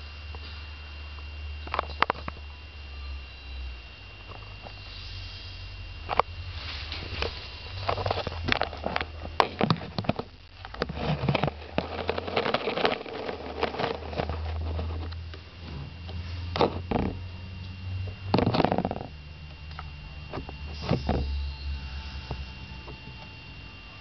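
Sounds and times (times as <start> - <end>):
steady low hum: 0.0 - 24.0
rustling: 6.0 - 16.9
bird scratching and tapping: 7.9 - 15.2.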